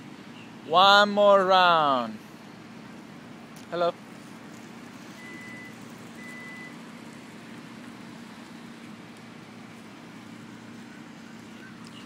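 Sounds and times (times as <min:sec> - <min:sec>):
road traffic rumble: 0:00.0 - 0:12.0
short high beeps: 0:05.2 - 0:06.7.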